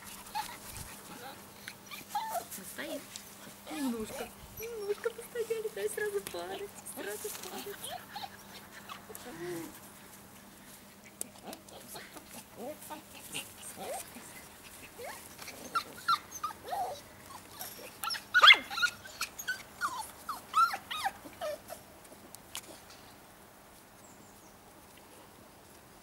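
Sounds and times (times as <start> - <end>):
puppies whimpering and yipping: 0.0 - 2.6, 3.7 - 5.8, 6.8 - 9.7, 11.6 - 21.8.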